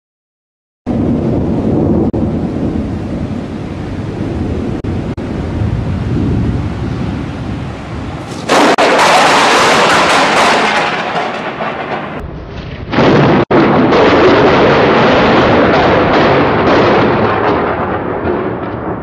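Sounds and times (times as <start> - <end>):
low rumbling thunder: 0.9 - 19.0
loud crash of noise: 8.2 - 19.0.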